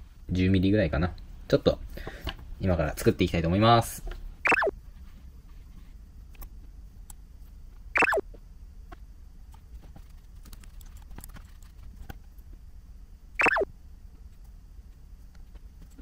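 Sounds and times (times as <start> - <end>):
falling sound effect tones: 4.5 - 4.7, 8.0 - 8.2, 13.4 - 13.7.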